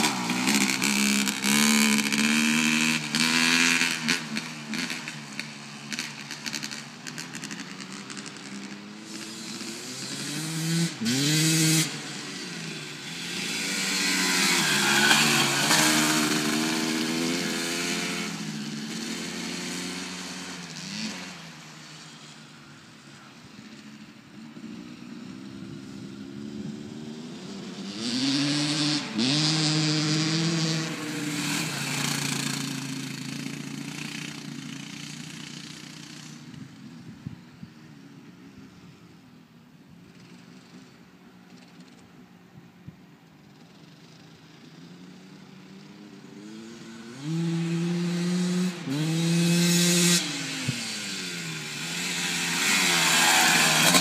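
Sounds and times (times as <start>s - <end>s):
dirt bike engine revving: 0.0s - 21.6s, 24.6s - 36.4s, 46.3s - 54.0s.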